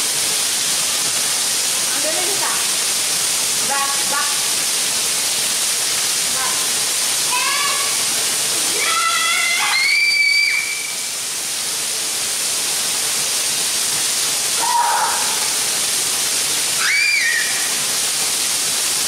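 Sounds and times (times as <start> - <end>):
heavy rain pouring: 0.0 - 19.0
child crying: 14.6 - 15.4.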